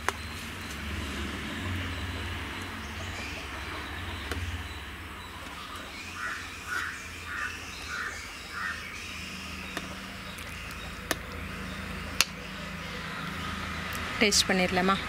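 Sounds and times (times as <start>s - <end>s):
crow cawing: 6.2s - 8.9s.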